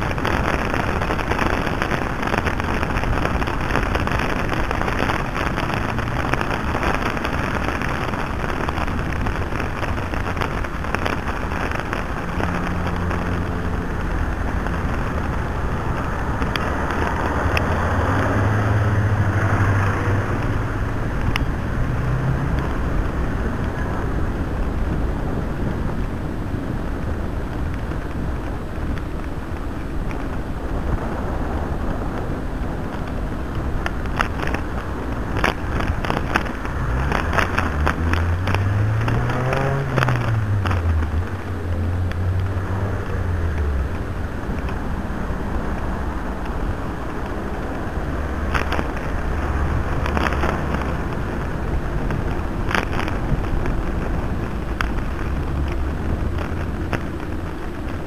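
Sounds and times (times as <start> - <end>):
wind and road noise: 0.0 - 58.0
vehicle engine passing: 11.5 - 25.4, 35.1 - 58.0.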